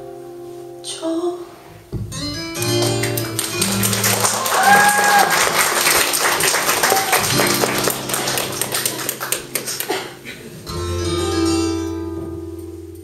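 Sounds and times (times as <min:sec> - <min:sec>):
instrumental chords ringing: 0:01.6 - 0:04.6, 0:05.4 - 0:13.0
audience applause: 0:02.6 - 0:10.5
audience cheering: 0:02.8 - 0:10.2.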